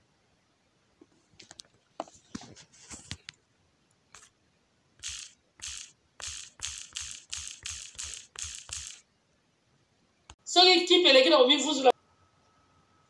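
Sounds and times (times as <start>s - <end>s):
hissy percussive beats with thuds: 5.0s - 9.0s
scattered clicks and knocks: 5.0s - 9.0s.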